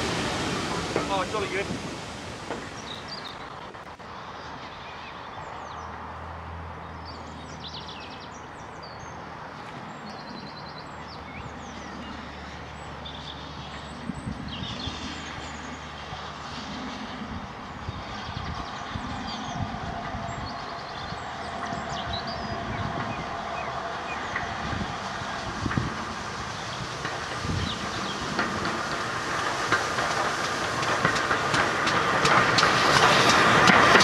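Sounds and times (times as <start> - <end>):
distant steam train rumble: 0.0 - 34.0
birds singing and trilling: 2.6 - 3.6, 6.8 - 16.4, 17.6 - 29.4.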